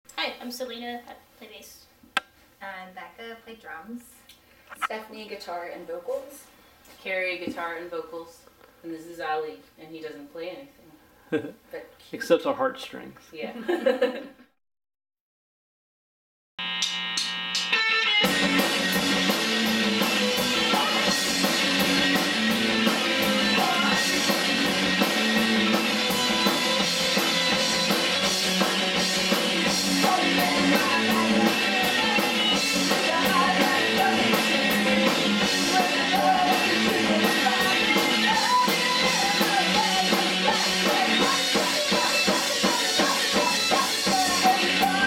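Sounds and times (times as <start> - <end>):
distorted electric guitars: 16.6 - 45.0
drum kit: 16.7 - 45.0
bass guitar: 16.8 - 45.0
person singing: 20.4 - 21.5, 23.2 - 24.4, 29.9 - 45.0.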